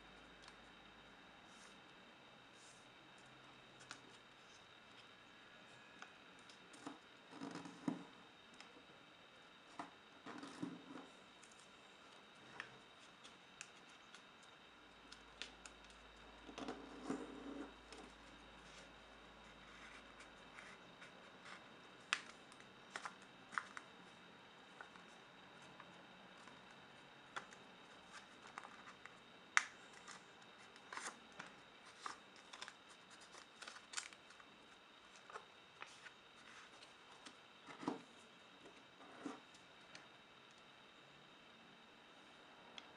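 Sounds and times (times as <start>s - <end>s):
paper being folded and creased: 27.3s - 34.4s.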